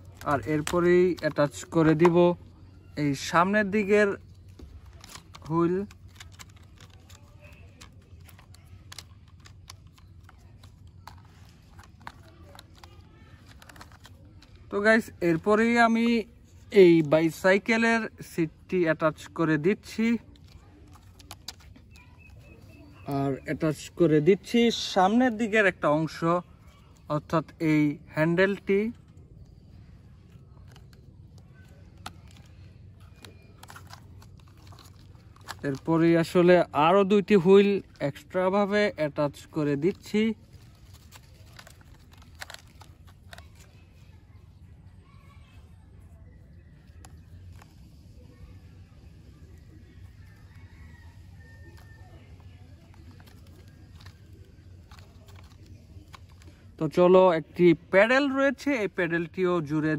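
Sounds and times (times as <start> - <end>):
plastic toy parts clicking: 0.0 - 2.4, 3.2 - 16.2, 19.1 - 23.9, 28.6 - 38.8, 39.4 - 43.8
clicks and taps of plastic parts: 4.5 - 14.7.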